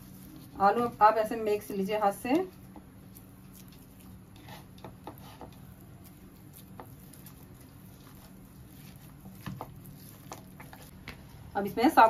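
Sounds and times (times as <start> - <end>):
potatoes squished by hand: 4.9 - 11.3.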